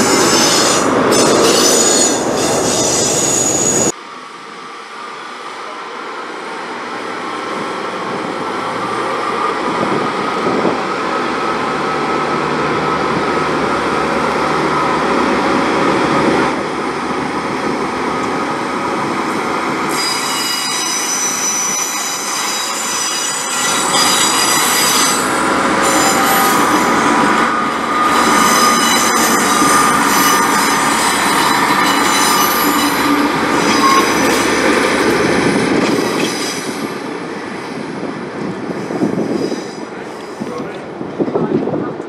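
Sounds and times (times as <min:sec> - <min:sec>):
diesel train running past: 0:00.0 - 0:42.0
high-pitched wheel flange squeal: 0:00.1 - 0:03.9, 0:19.9 - 0:34.4.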